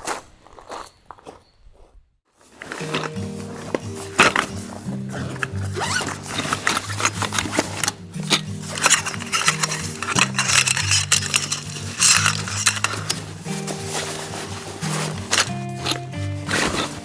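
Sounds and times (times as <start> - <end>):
fabric bag rustling: 2.3 - 17.0
metal poles clinking: 2.5 - 17.0
background music: 2.6 - 17.0.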